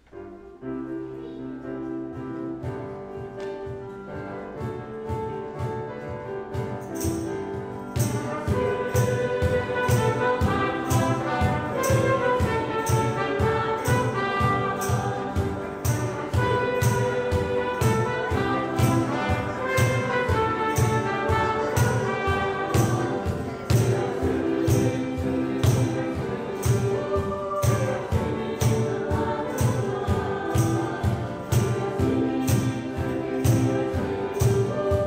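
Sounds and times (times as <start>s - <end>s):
sustained keyboard chords: 0.0s - 35.0s
acoustic guitars: 2.6s - 35.0s
cajon beat: 5.0s - 35.0s
people singing: 8.0s - 35.0s.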